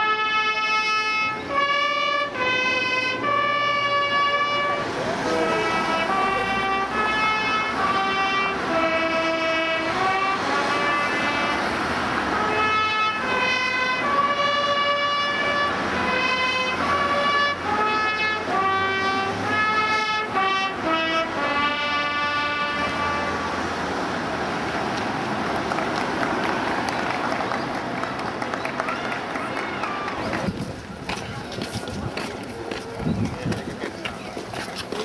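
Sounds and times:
trumpets playing a tune: 0.0s - 23.6s.

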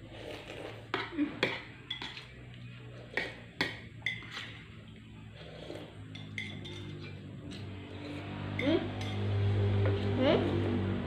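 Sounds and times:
metal spoons clinking on plates: 0.9s - 4.7s, 6.0s - 9.5s.

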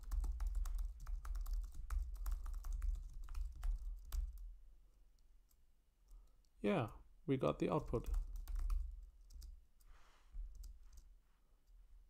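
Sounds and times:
typing on computer keyboard: 0.0s - 4.5s, 7.8s - 9.6s.

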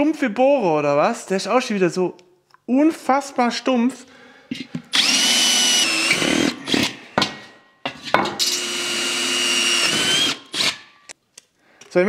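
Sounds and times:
power drill whining: 4.9s - 7.0s, 8.4s - 11.2s.

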